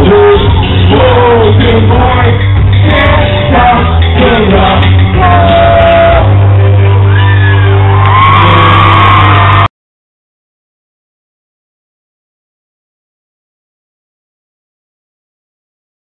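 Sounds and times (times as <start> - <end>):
person singing: 0.0 - 6.6
live rock band playing: 0.0 - 9.7.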